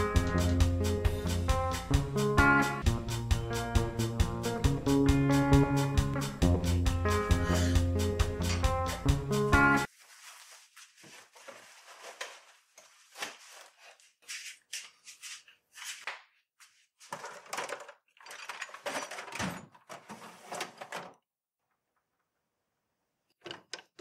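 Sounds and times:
knocks clicks and rustling: 23.3s - 24.0s.

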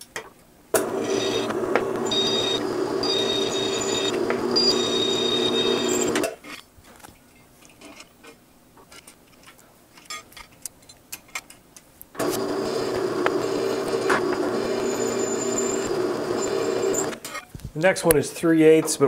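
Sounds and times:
drill press motor humming: 0.8s - 6.3s, 12.2s - 17.3s.

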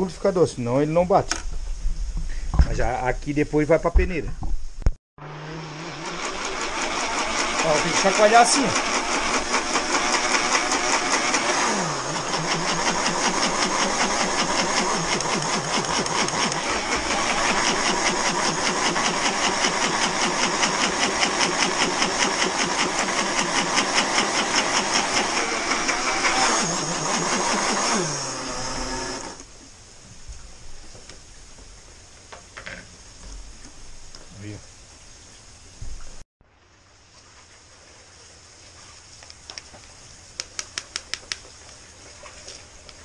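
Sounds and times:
electric blender grinding: 5.2s - 29.5s
blender jar rattling: 6.1s - 29.4s.

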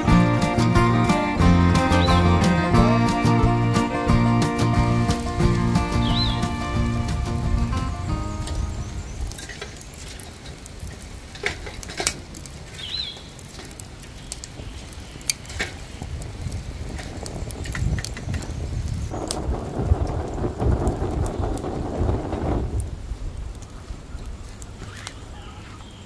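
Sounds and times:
metal tongs clacking on charcoal: 9.2s - 15.9s.

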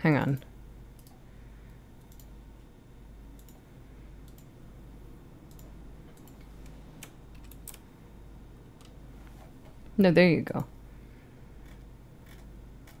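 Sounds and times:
steady low hum: 0.0s - 13.0s
computer mouse clicks: 0.4s - 1.2s, 2.0s - 2.4s, 3.3s - 3.6s, 4.2s - 4.5s, 5.5s - 7.8s.

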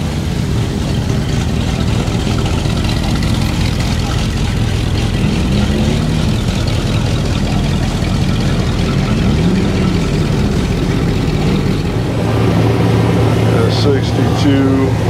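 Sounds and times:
car engine running: 0.0s - 15.0s.

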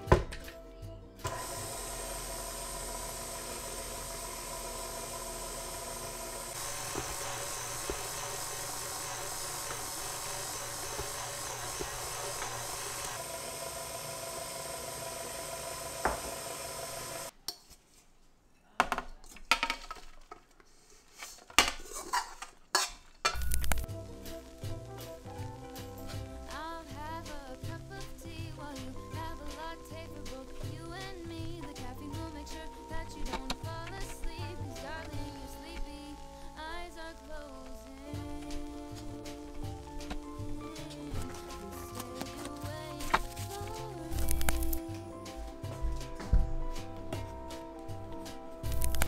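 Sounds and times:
stand mixer motor running: 1.3s - 17.3s.

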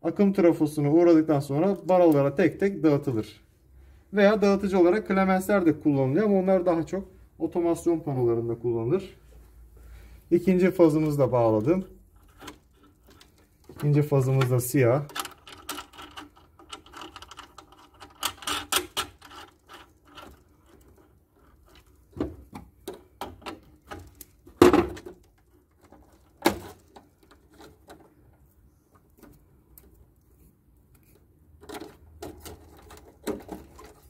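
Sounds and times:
cable handling clicks and rustling: 1.4s - 2.7s, 10.6s - 34.0s.

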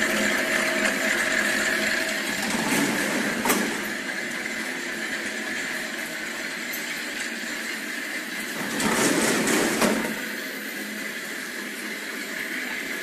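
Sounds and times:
machine mechanical drone: 0.0s - 13.0s.

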